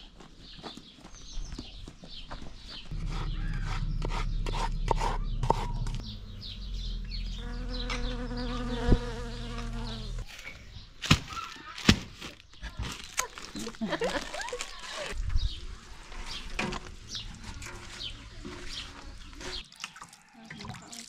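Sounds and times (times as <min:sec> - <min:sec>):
bee buzzing: 0:07.0 - 0:10.3.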